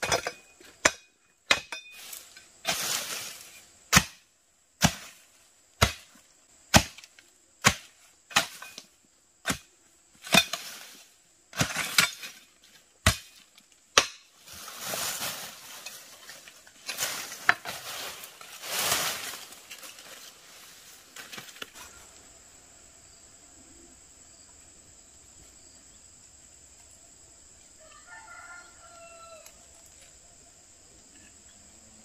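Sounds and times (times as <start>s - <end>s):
insects chirring: 0.0s - 32.0s
rooster crowing: 27.8s - 29.8s.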